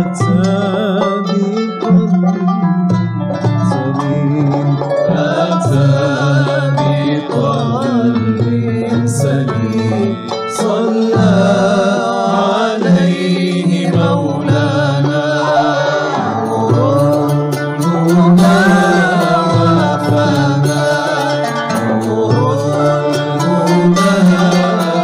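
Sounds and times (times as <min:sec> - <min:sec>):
plucked strings: 0:00.0 - 0:25.0
person singing ornamented melody: 0:03.7 - 0:25.0
sustained low bass notes: 0:16.2 - 0:25.0.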